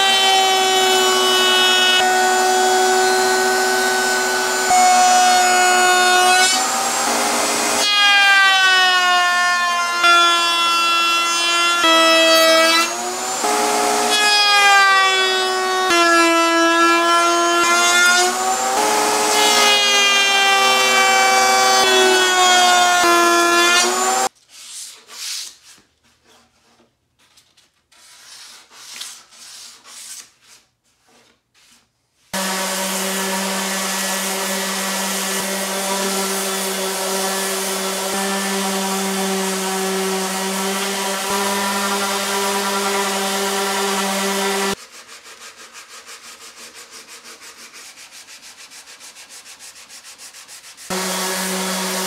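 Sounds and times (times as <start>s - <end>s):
orbital sander humming: 50.9s - 52.0s.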